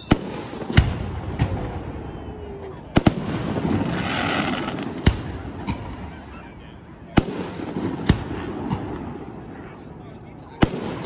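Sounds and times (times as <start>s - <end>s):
firework hiss: 3.0s - 5.3s
small firework pops: 3.0s - 6.0s.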